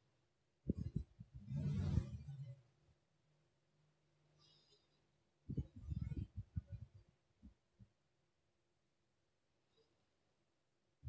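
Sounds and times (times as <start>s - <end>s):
low muffled thumps and rumble: 0.7s - 2.3s, 5.5s - 7.0s.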